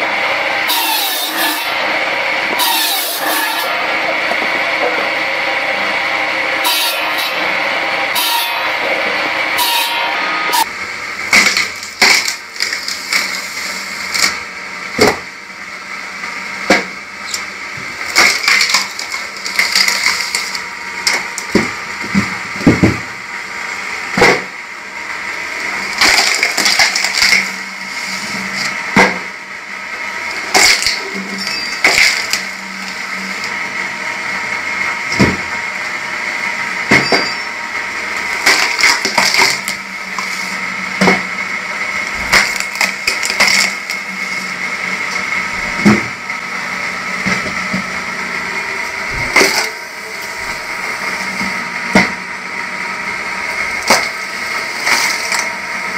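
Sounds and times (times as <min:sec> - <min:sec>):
log splitter motor running: 0:00.0 - 0:55.9
wood cracking and splintering: 0:11.3 - 0:13.5, 0:18.0 - 0:21.5, 0:26.0 - 0:27.5, 0:30.5 - 0:31.0, 0:31.8 - 0:32.5, 0:38.4 - 0:39.8, 0:42.2 - 0:44.0.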